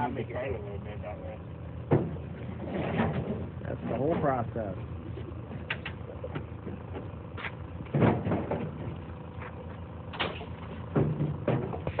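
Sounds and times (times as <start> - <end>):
low engine hum: 0.0 - 12.0
wooden fence slats clattering: 7.9 - 9.0, 10.1 - 12.0.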